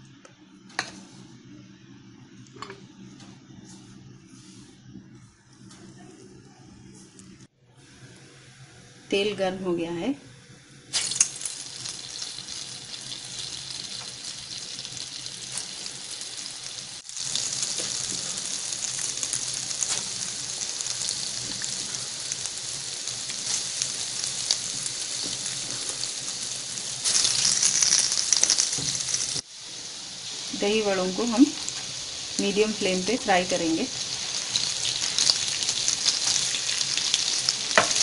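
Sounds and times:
batter deep-frying in oil: 0:10.9 - 0:38.0.

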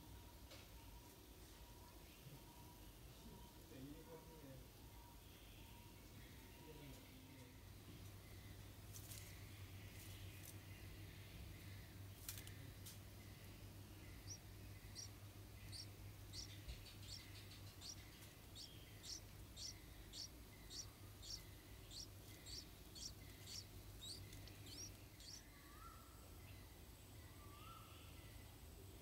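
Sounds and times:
nestlings begging squeaks: 0:14.0 - 0:25.5.

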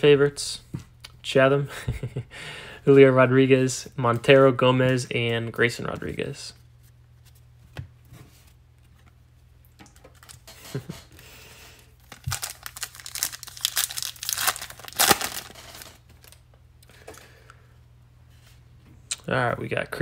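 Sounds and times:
card pack wrapper tearing: 0:12.0 - 0:16.4.

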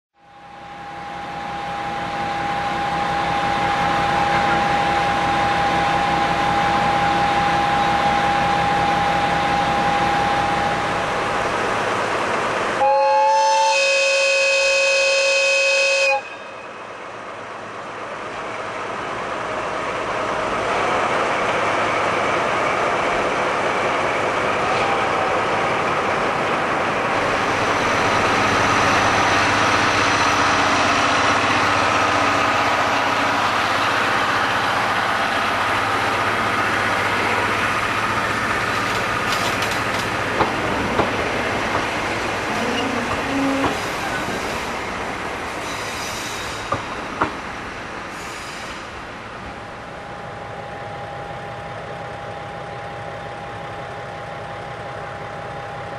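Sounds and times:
diesel locomotive engine working: 0:00.2 - 0:55.9
two-tone locomotive horn: 0:12.8 - 0:16.8, 0:42.6 - 0:43.8.

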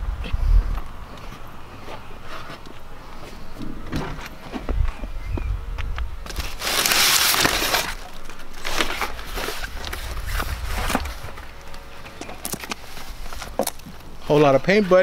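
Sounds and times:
loud rush of noise: 0:09.0 - 0:12.0.

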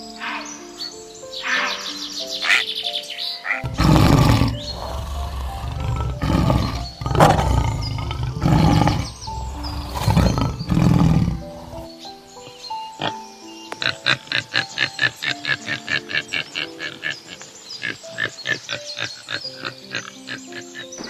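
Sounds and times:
background music: 0:00.0 - 0:21.0
lion roaring: 0:03.6 - 0:11.9.

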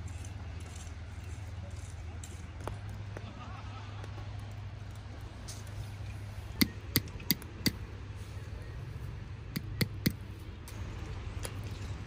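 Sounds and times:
low steady rumble: 0:00.0 - 0:12.0
sharp knocks of hard objects: 0:09.6 - 0:10.2.

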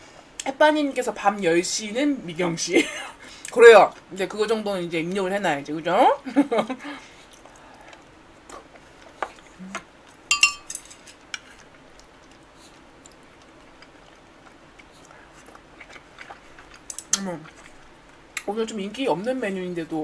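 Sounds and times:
bright ringing clink: 0:10.3 - 0:10.8
chopsticks and spoon clicking on dishes: 0:10.3 - 0:11.2.

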